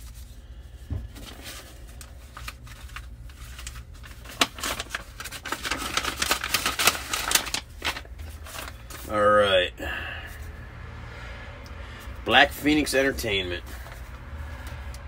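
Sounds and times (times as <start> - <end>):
paper rustling and crinkling: 0.0 - 9.2, 13.6 - 14.2.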